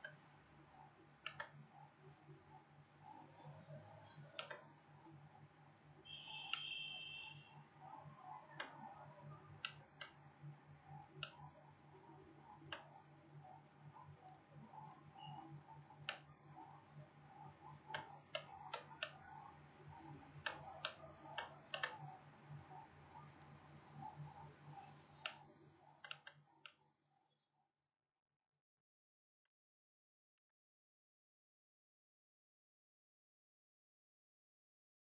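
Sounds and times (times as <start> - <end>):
computer mouse clicking: 0.0 - 2.3, 3.1 - 5.1, 6.1 - 6.8, 7.8 - 26.8.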